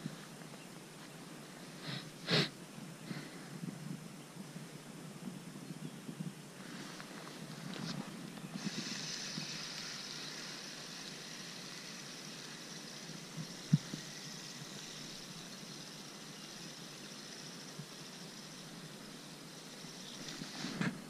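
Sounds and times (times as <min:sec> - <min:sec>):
fishing rod handling rustle: 0:06.7 - 0:11.9
fishing reel whirring: 0:08.5 - 0:20.6.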